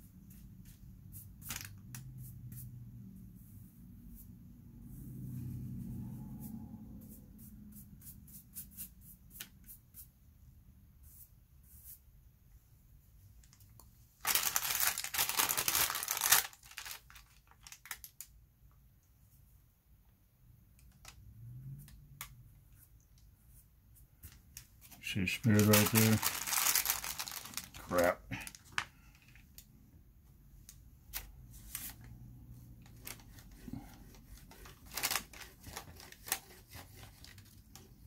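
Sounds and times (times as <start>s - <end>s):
brushes ticking and scratching on paper: 3.4s - 10.2s, 11.0s - 12.0s, 22.6s - 28.1s, 32.8s - 38.0s
paper rustle: 14.2s - 18.2s, 24.2s - 29.5s, 32.9s - 37.9s.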